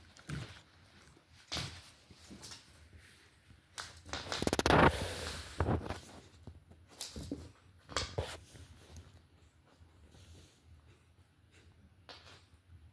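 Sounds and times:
puppy scuffling on laminate floor: 0:00.0 - 0:03.3.

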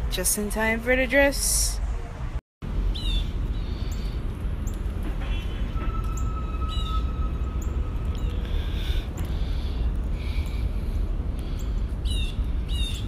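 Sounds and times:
steady low rumble: 0:01.7 - 0:13.0
thin steady whistle: 0:05.8 - 0:08.5
high bird chirps: 0:06.1 - 0:08.5.

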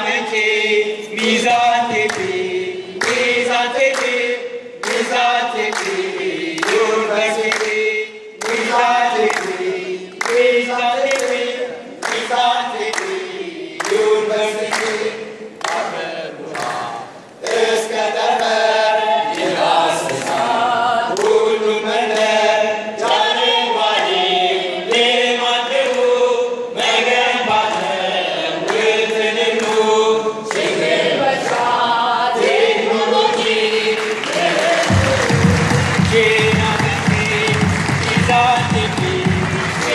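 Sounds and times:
group singing in unison: 0:00.0 - 0:39.9
hand claps: 0:01.2 - 0:02.4, 0:03.0 - 0:18.6, 0:21.1 - 0:21.4, 0:25.7 - 0:26.2, 0:27.6 - 0:28.0, 0:28.6 - 0:28.9, 0:29.5 - 0:29.9, 0:30.5 - 0:31.8, 0:33.3 - 0:39.9.

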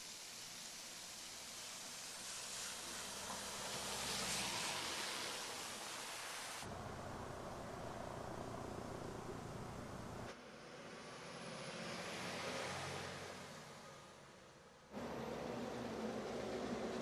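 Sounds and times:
car tyres hissing through water: 0:00.0 - 0:10.0.

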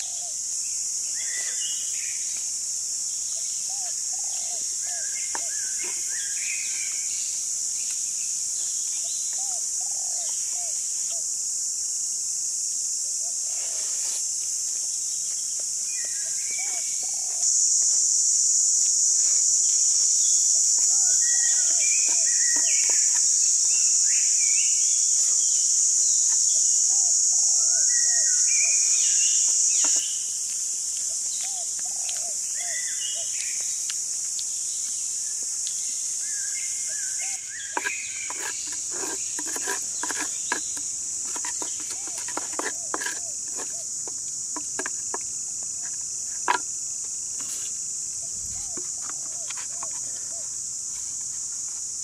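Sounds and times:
high-pitched insect drone: 0:00.0 - 0:52.0
bamboo tube clicks and knocks: 0:37.8 - 0:45.3, 0:46.4 - 0:46.7.

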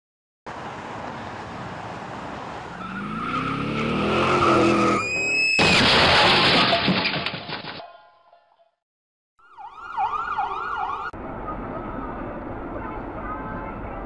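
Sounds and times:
road noise inside truck cab: 0:00.5 - 0:05.2, 0:11.1 - 0:14.0
loud crash: 0:05.5 - 0:07.8.

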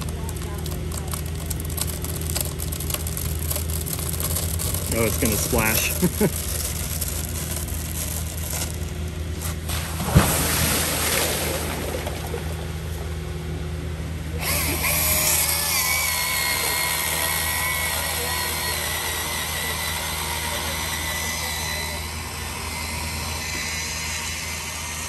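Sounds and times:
barge engine humming: 0:00.0 - 0:25.0
chainsaw whining: 0:00.9 - 0:09.1, 0:14.3 - 0:25.0
tree crown splashing into water: 0:09.7 - 0:12.7.

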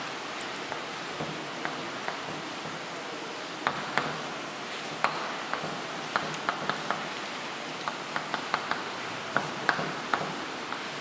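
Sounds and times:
chalk tapping on blackboard: 0:03.6 - 0:04.3, 0:05.0 - 0:07.2, 0:07.8 - 0:11.0.

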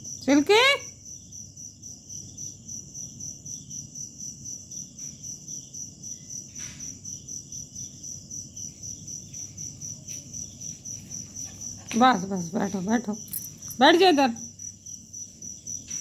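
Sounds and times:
cricket chirping: 0:00.0 - 0:16.0.

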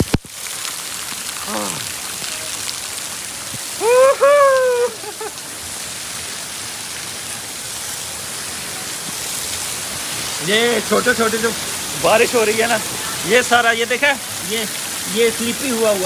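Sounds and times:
waterfall spray hissing on rocks: 0:00.0 - 0:16.0
person calling out loudly: 0:01.4 - 0:01.9, 0:03.8 - 0:05.1.

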